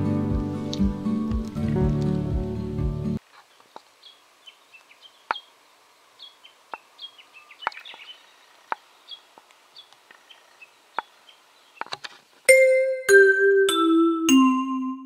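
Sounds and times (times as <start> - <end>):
small bird chirping: 3.5 - 11.9.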